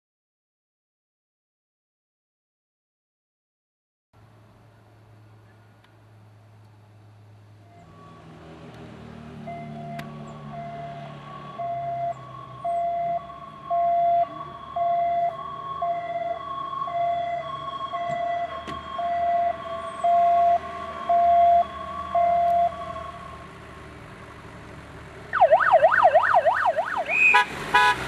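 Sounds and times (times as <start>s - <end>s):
two-tone emergency siren: 9.4s - 23.9s, 25.3s - 28.0s.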